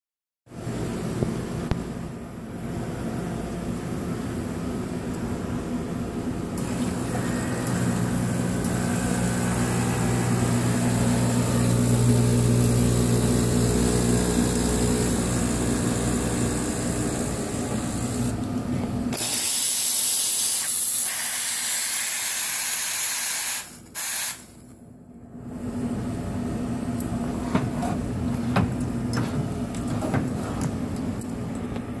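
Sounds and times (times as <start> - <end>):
espresso machine humming: 6.6 - 18.4.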